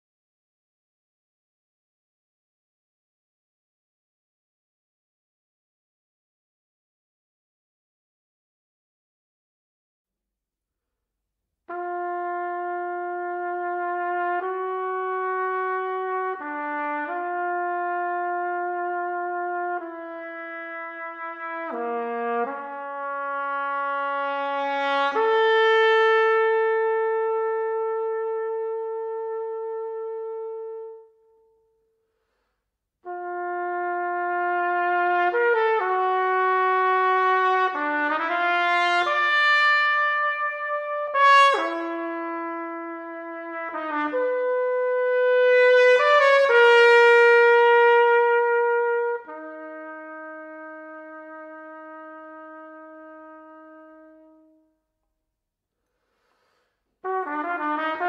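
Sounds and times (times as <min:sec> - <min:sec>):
solo trumpet: 0:11.6 - 0:55.1, 0:56.2 - 0:58.0.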